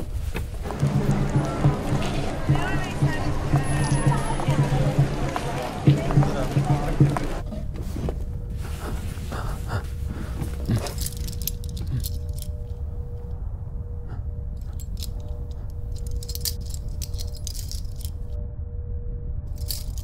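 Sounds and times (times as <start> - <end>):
low steady drone: 0.6 - 20.0
handcuff chain clinking: 10.5 - 13.3, 14.4 - 18.3, 19.5 - 20.0.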